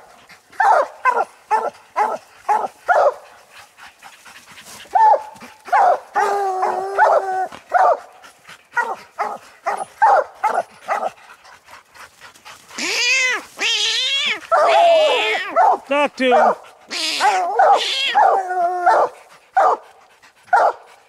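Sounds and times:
hounds bawling: 4.9 - 11.9, 12.7 - 19.8.

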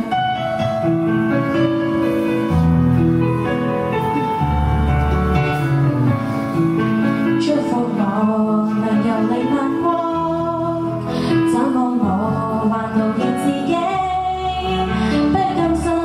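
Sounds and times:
recorded backing track: 0.0 - 16.0
woman singing a pop ballad: 7.3 - 16.0.

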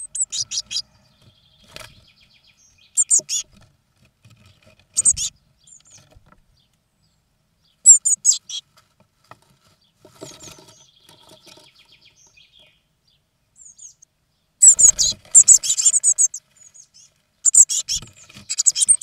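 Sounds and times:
fledglings chirping: 0.0 - 3.6, 4.9 - 6.1, 7.8 - 8.6, 13.6 - 14.0, 14.6 - 19.0
feet scratching in nest box: 8.0 - 11.7, 14.6 - 16.4.

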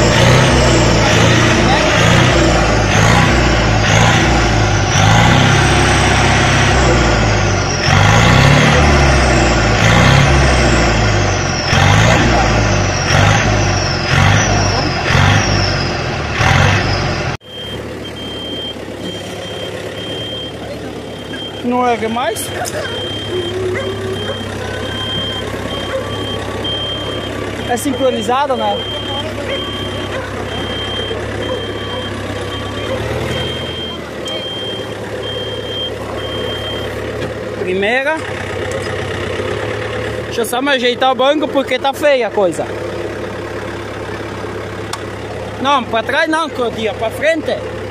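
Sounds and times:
diesel tractor engine revving: 0.0 - 47.9
short high beep: 17.4 - 37.0.

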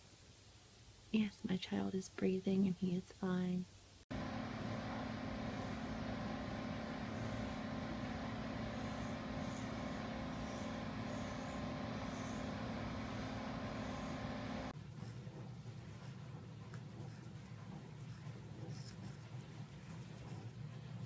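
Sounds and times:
mechanical drone: 4.1 - 14.7.

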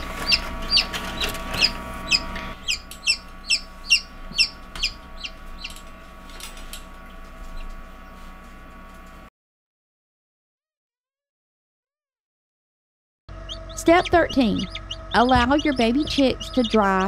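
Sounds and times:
chick peeping: 0.0 - 5.8, 7.5 - 8.2, 13.3 - 17.0
faint steady hum: 0.0 - 9.3, 13.3 - 17.0.

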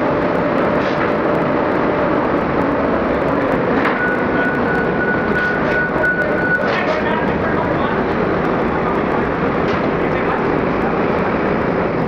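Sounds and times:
heavy machinery engine rumble: 0.0 - 12.0.

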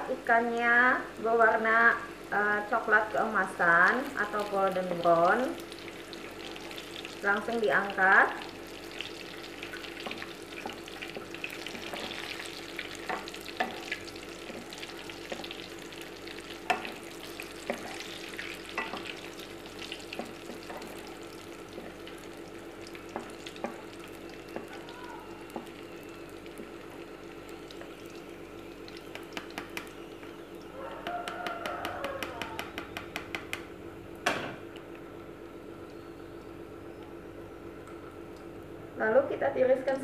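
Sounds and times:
fish sizzling in hot oil: 1.5 - 30.1.

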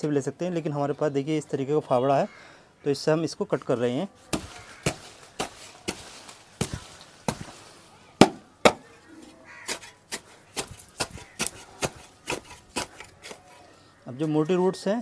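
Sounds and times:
metal spade chopping roots: 4.3 - 8.9, 9.7 - 13.6.

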